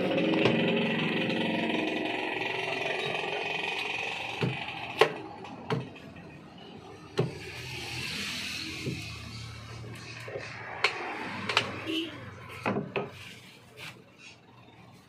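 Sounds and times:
engine hum: 0:00.0 - 0:06.0.

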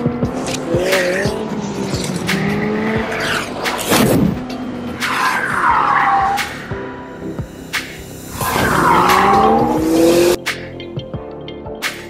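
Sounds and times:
car engine revving: 0:00.0 - 0:07.0, 0:07.8 - 0:10.4
tyre squeal: 0:08.4 - 0:09.9.

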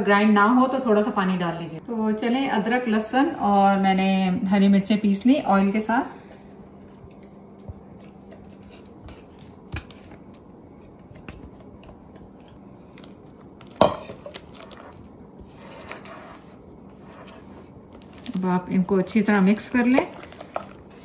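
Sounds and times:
spatula scraping in bowl: 0:15.4 - 0:21.0.

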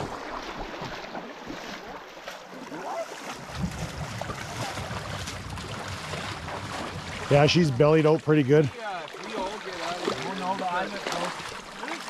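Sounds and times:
river water rippling over gravel: 0:00.0 - 0:12.0
boat engine hum: 0:03.3 - 0:12.0
wind on microphone: 0:03.4 - 0:07.8.

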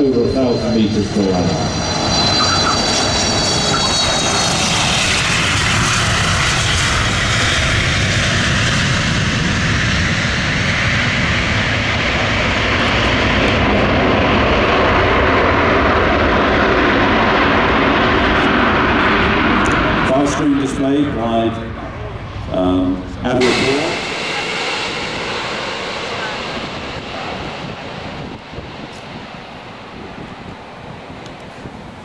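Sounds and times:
high turbine whine: 0:00.0 - 0:32.0
jet engines roaring: 0:00.0 - 0:32.0.

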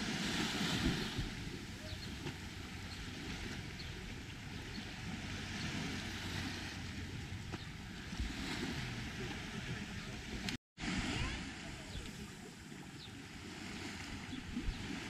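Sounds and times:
waves washing onto pebbles: 0:00.0 - 0:07.2
wind rumbling on microphone: 0:00.0 - 0:15.0.

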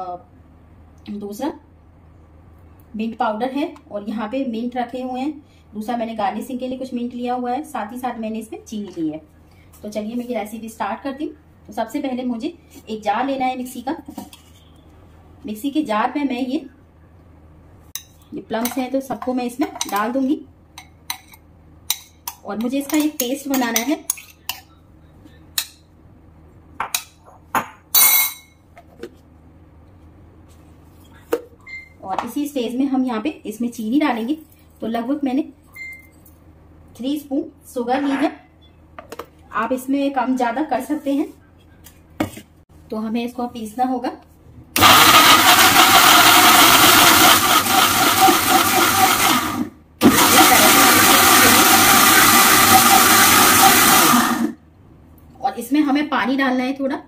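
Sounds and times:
mixer grinder running: 0:44.8 - 0:54.6.

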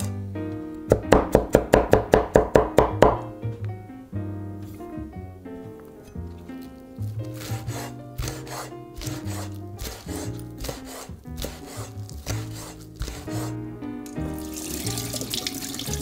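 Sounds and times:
background music: 0:00.0 - 0:16.0
knife chopping on wooden board: 0:00.9 - 0:03.2, 0:07.3 - 0:13.5.

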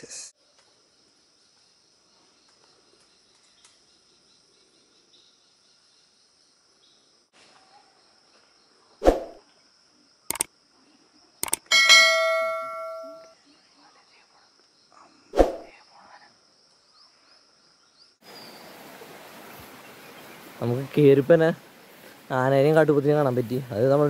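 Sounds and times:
mouse clicks: 0:11.4 - 0:11.6
bell ding: 0:11.7 - 0:13.4
sharp thud: 0:15.4 - 0:15.7.

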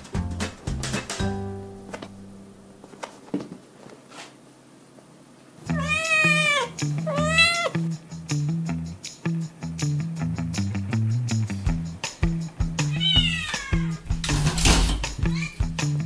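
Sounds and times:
background music with bass line: 0:00.0 - 0:01.8, 0:07.8 - 0:16.0
kitten meowing: 0:05.7 - 0:07.8, 0:12.9 - 0:14.0, 0:15.3 - 0:15.7.

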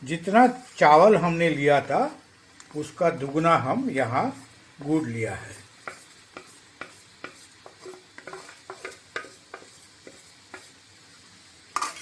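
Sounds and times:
spatula scraping a steel bowl: 0:05.4 - 0:10.7.

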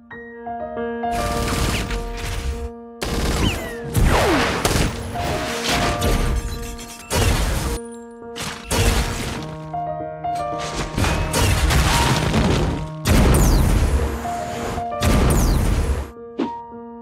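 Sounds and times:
gunfire: 0:11.4 - 0:14.0.

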